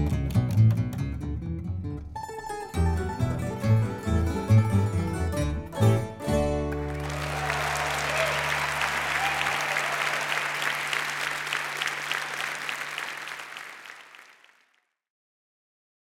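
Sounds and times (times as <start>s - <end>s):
guitar and bass chord ringing: 1.4s - 7.2s
audience applause: 6.6s - 14.8s.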